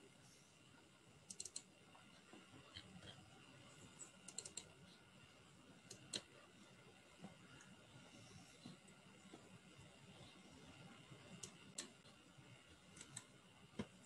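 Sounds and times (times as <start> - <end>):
computer mouse clicks: 1.3 - 1.7, 4.0 - 4.7, 5.8 - 6.3, 11.4 - 12.0, 12.9 - 13.9.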